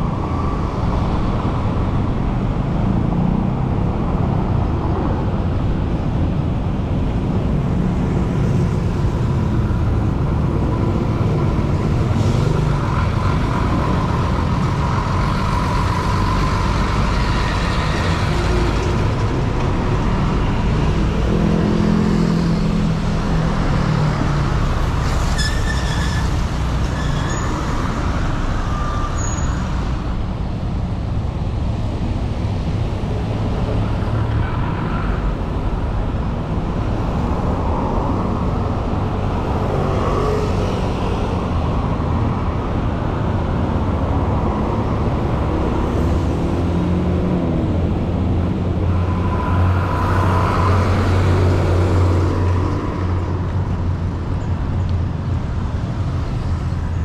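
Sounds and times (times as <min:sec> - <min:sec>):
road traffic rumble: 0:00.0 - 0:57.0
heavy vehicle engine passing: 0:31.9 - 0:56.7.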